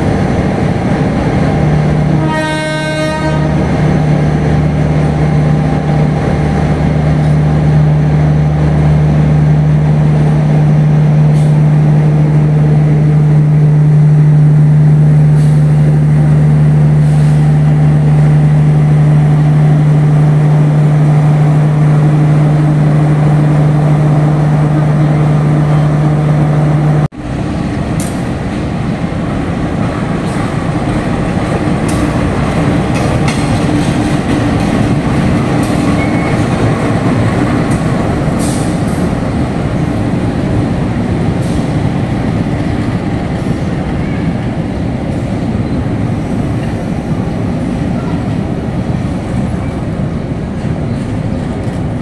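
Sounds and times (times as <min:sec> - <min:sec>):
locomotive engine humming: 0:00.0 - 0:52.0
train horn toot: 0:02.1 - 0:03.7.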